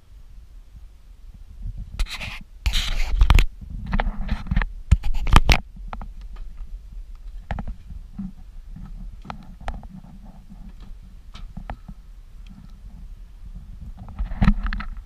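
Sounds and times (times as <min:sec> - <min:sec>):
camera handling noise: 0:02.0 - 0:05.6.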